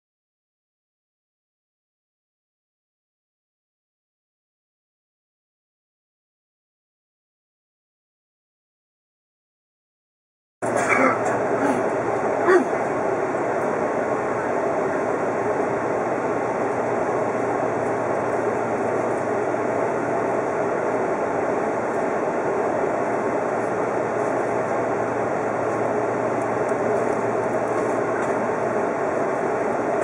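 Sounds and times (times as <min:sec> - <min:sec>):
electric train hum and hiss: 0:10.6 - 0:30.0.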